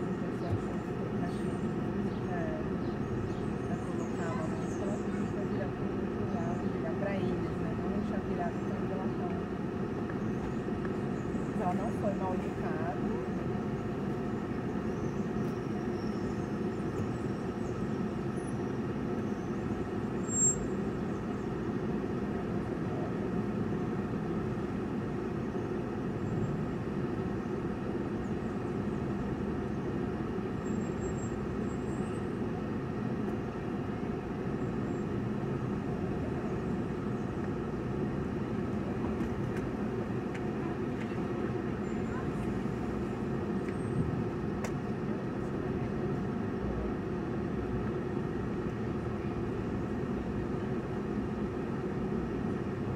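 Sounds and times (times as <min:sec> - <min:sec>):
car engine and road noise: 0:12.9 - 0:52.9.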